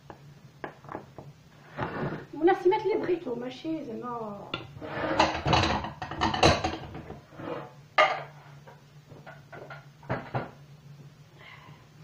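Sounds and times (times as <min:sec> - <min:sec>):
faint steady hum: 0:00.0 - 0:12.0
dishes and utensils clicking: 0:04.6 - 0:07.1.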